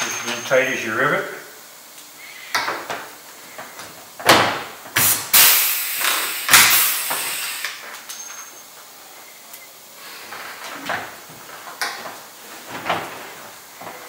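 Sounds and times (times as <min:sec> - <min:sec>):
rivet gun snap and air hiss: 0:05.0 - 0:07.8.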